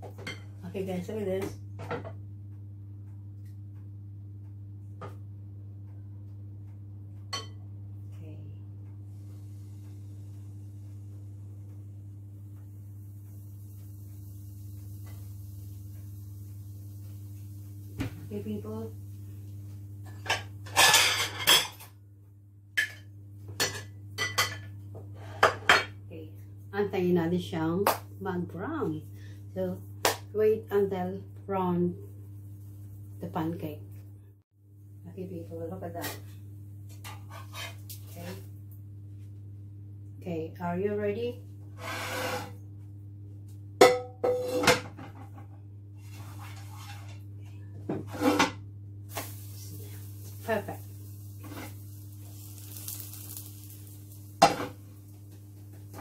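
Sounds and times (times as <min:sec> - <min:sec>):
steady low hum: 0:00.0 - 0:56.0
kitchenware clattering: 0:20.1 - 0:21.9, 0:22.8 - 0:24.8, 0:43.8 - 0:45.4
frying pan and spatula clanking: 0:43.8 - 0:45.2.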